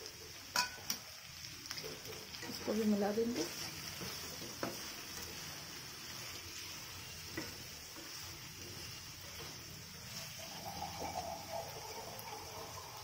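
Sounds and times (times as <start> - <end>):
vegetables sizzling in oil: 0.0 - 13.0
spatula tapping pan: 0.5 - 1.0, 3.5 - 5.4, 7.2 - 9.7
spatula stirring: 1.7 - 11.7.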